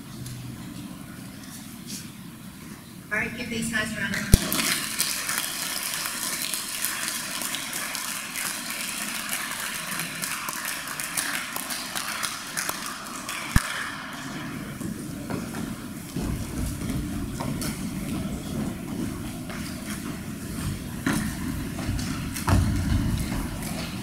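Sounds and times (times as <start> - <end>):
audience applauding: 4.4 - 14.6.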